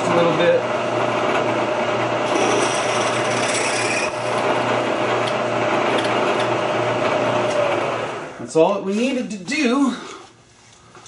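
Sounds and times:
drill spindle motor humming: 0.9 - 8.3
drill cutting through steel: 2.2 - 4.5.

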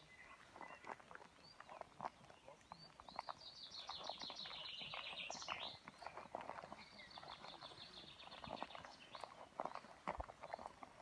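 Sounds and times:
footsteps on asphalt: 0.0 - 11.0
songbird trilling: 2.8 - 6.2.

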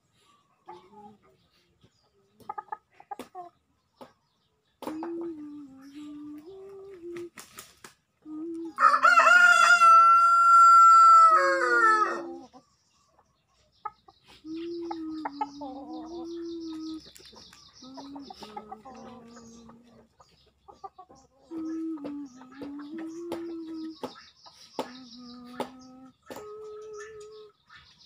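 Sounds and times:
rooster crowing: 8.8 - 12.3.

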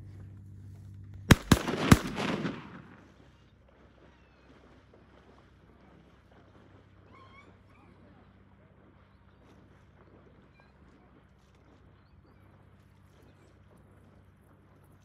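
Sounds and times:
gunshot echo: 1.3 - 3.2
shotgun shots: 1.3 - 3.3.

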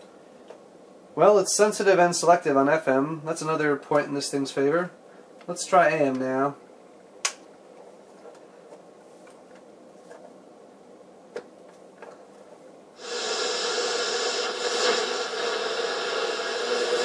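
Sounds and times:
loud radio static with interference tones: 13.0 - 17.0.

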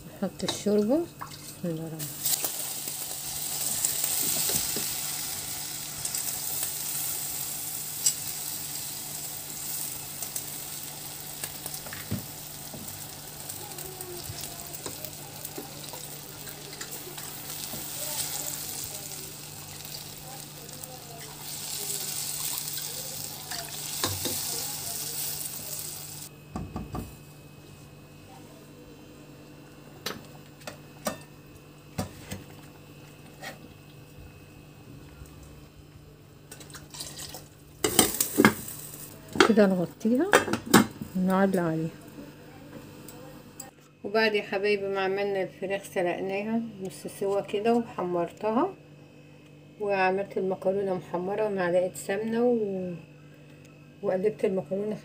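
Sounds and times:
broth sizzling in hot pot: 1.3 - 26.3, 36.5 - 41.6.

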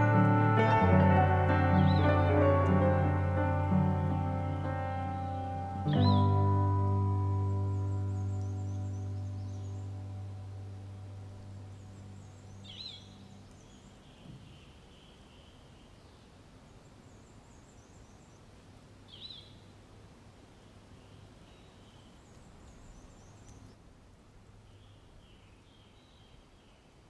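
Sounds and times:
background music: 0.0 - 13.6
birds chirping: 0.0 - 19.8, 20.5 - 23.9, 24.5 - 27.0
outdoor hiss: 0.0 - 27.0.

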